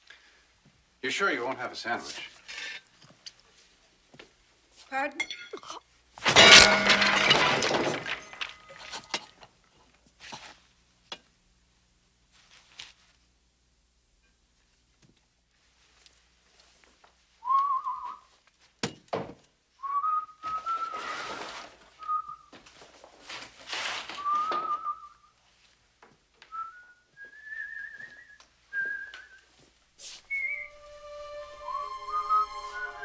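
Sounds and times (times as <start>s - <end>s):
rushing clattering noises: 6.2s - 9.3s
man whistling a tune: 17.4s - 18.3s, 19.8s - 21.1s, 24.2s - 25.3s, 26.5s - 29.5s, 30.3s - 33.0s.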